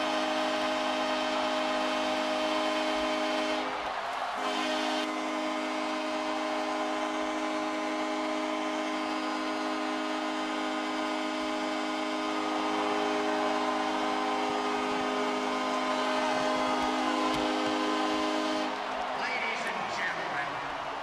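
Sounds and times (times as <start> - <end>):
arena horn chord: 0.0 - 3.8, 4.4 - 19.0
crowd noise: 0.0 - 21.0.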